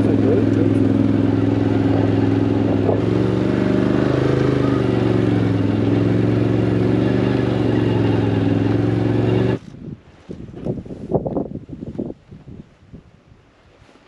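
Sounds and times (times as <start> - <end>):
engine running steadily: 0.0 - 11.0.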